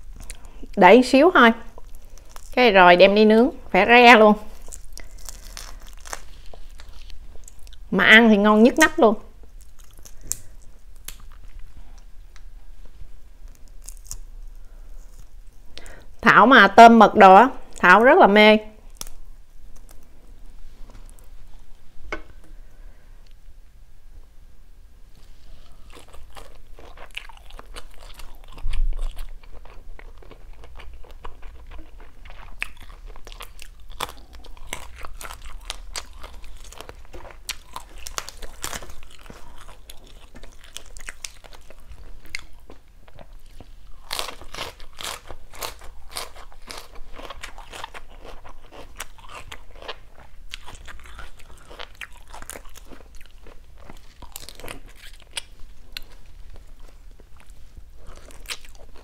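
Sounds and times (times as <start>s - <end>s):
chewing crunchy food: 1.6s - 2.7s, 4.4s - 7.9s, 9.4s - 12.1s, 25.2s - 59.0s.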